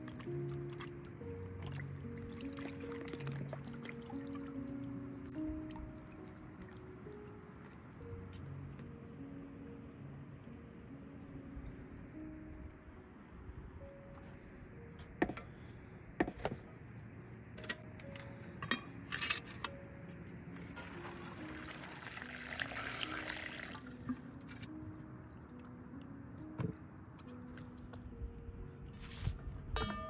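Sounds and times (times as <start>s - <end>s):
soft background music: 0.0s - 30.0s
water pouring from kettle: 20.6s - 23.9s.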